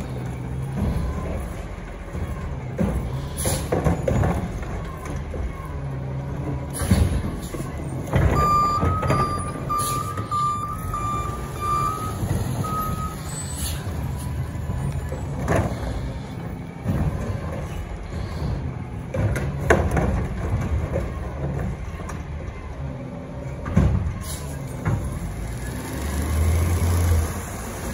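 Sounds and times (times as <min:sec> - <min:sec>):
diesel engine running: 0:00.0 - 0:27.9
back-up warning beeps: 0:08.3 - 0:13.6
air brake hissing: 0:13.2 - 0:14.4.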